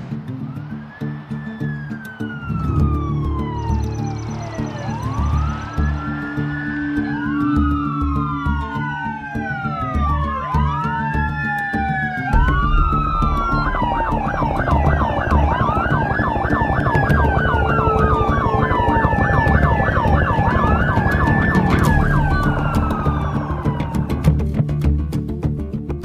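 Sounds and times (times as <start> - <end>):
police sirens wailing: 0.0 - 24.7
background music: 0.0 - 26.0
police siren yelp: 0.4 - 24.6.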